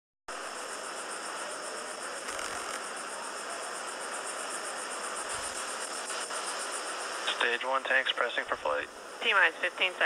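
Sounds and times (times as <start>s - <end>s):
steady hiss: 0.3s - 10.0s.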